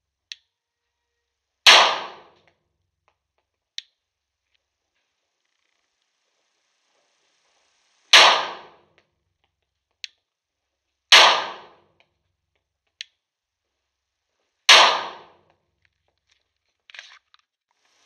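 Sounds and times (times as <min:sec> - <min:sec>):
pistol shots with echo: 0:01.7 - 0:02.4, 0:08.1 - 0:08.8, 0:11.1 - 0:11.8, 0:14.7 - 0:15.4.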